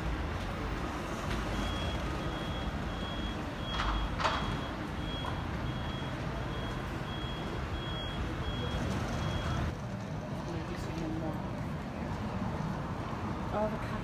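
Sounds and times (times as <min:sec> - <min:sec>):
low engine and street rumble: 0:00.0 - 0:14.0
reversing alarm beeping: 0:01.4 - 0:09.7.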